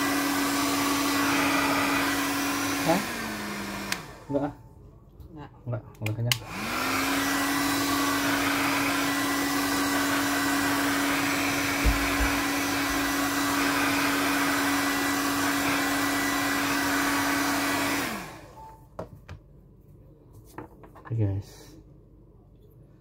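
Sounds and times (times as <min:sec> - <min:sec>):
hair dryer blowing: 0:00.0 - 0:04.6, 0:06.3 - 0:18.7
low thump: 0:11.8 - 0:12.4.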